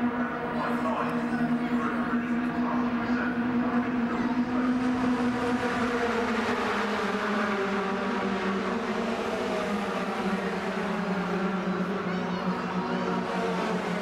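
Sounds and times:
racing truck engines droning: 0.0s - 14.0s.

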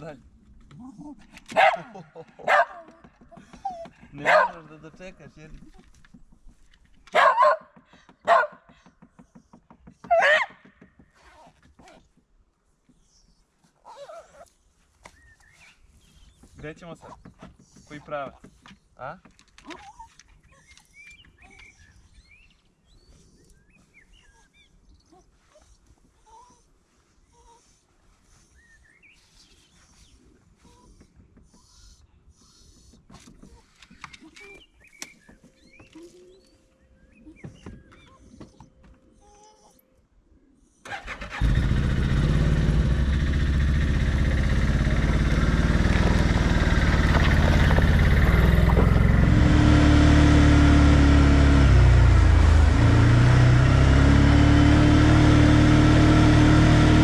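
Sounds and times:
quad bike engine running: 41.0s - 57.0s.

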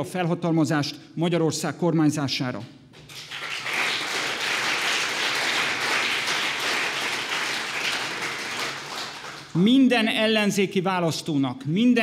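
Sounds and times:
audience applauding: 3.0s - 9.6s.

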